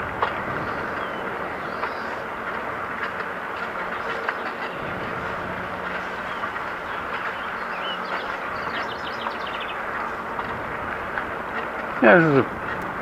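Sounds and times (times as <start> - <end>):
bicycle tyres rolling: 0.0 - 13.0
light clicks and rattles: 0.0 - 13.0.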